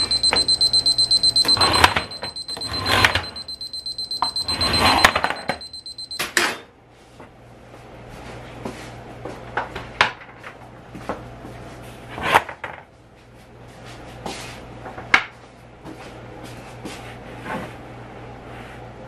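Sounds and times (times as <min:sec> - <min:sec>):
low hum: 0:00.0 - 0:06.2.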